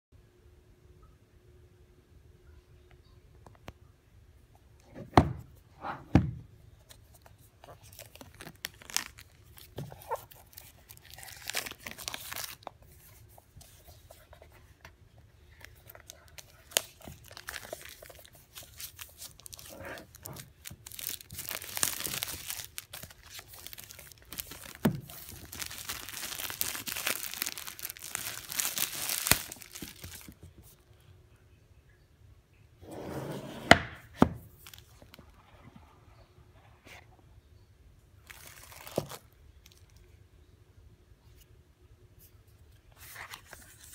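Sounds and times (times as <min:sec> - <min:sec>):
plastic shrink wrap crinkling: 0:07.0 - 0:14.4, 0:15.4 - 0:30.8, 0:34.5 - 0:35.4, 0:38.2 - 0:40.1.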